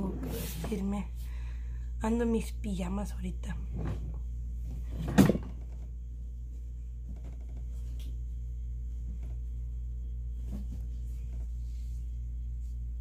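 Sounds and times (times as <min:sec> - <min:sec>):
low electrical hum: 0:00.0 - 0:13.0.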